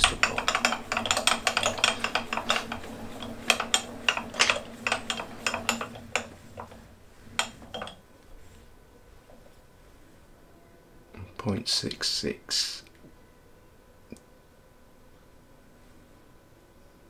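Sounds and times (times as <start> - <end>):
metallic clicks and rattles: 0.0 - 8.0
machine low hum: 0.0 - 17.0.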